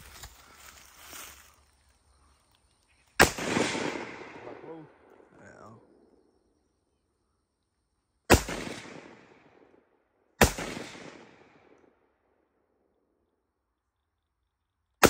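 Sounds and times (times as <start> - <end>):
rifle shots echoing: 3.2 - 5.3, 8.3 - 9.7, 10.4 - 11.8.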